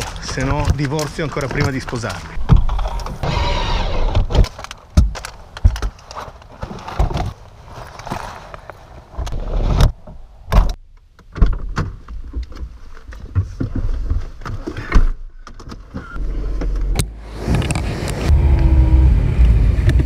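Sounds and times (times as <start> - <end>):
car engine starting and running: 16.2 - 20.0.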